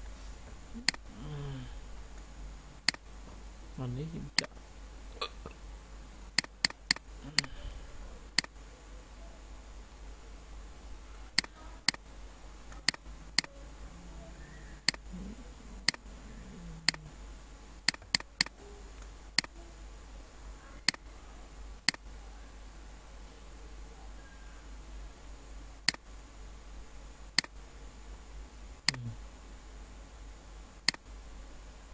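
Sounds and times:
low steady hum: 0:00.0 - 0:31.9
computer mouse clicking: 0:02.8 - 0:03.0, 0:06.4 - 0:07.5, 0:14.8 - 0:15.0, 0:15.8 - 0:16.0, 0:16.9 - 0:17.1, 0:17.9 - 0:19.6, 0:30.8 - 0:31.0.

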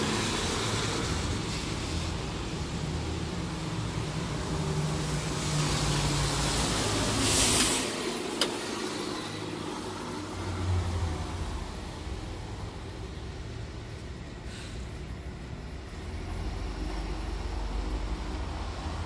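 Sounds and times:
bus and traffic engine hum: 0:00.0 - 0:19.0
air hiss: 0:05.2 - 0:09.9, 0:14.4 - 0:15.1
heavy low rumble: 0:10.4 - 0:19.0.

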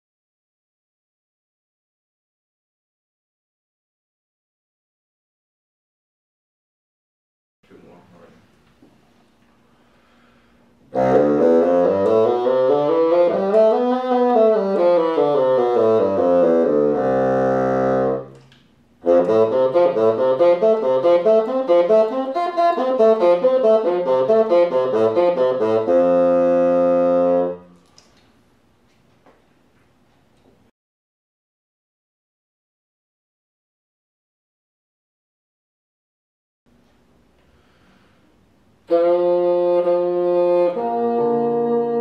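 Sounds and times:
solo bassoon playing: 0:10.9 - 0:18.4, 0:19.0 - 0:27.8, 0:38.8 - 0:42.0.

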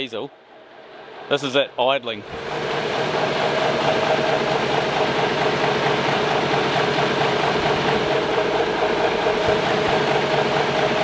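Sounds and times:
diesel engine idling: 0:02.2 - 0:11.0.

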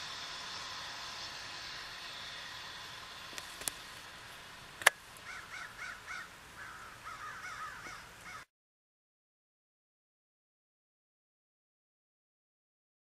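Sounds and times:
steady hiss: 0:00.0 - 0:08.4
sharp click: 0:04.8 - 0:05.0
eagle piping calls: 0:05.2 - 0:08.5.

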